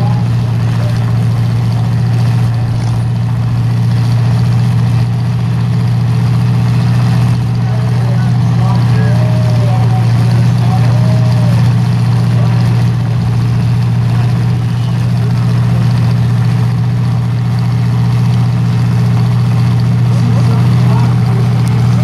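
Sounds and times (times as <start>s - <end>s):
car engines idling: 0.0s - 22.0s.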